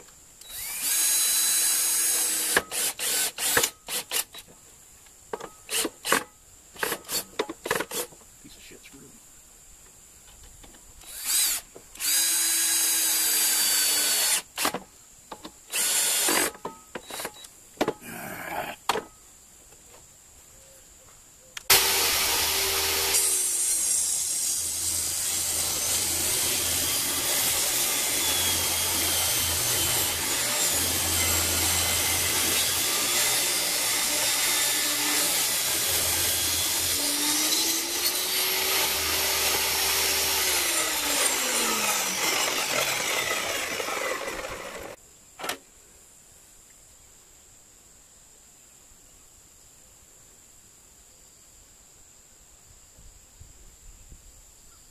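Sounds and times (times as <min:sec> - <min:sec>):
power drill bursts: 0:00.4 - 0:04.4, 0:11.0 - 0:14.8, 0:15.7 - 0:17.5, 0:21.7 - 0:45.0
table saw cutting wood: 0:21.7 - 0:45.0.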